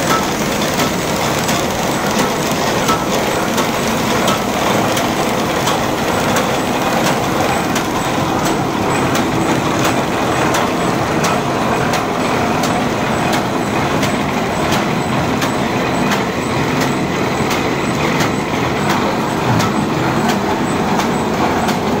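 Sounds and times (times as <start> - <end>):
machine clattering: 0.0 - 22.0.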